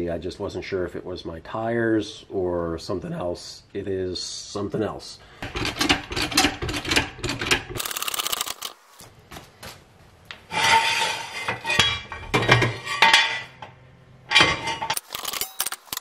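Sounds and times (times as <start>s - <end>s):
floor jack clicking and knocking: 5.4s - 7.8s
jack stand rattling metallically: 5.4s - 8.6s.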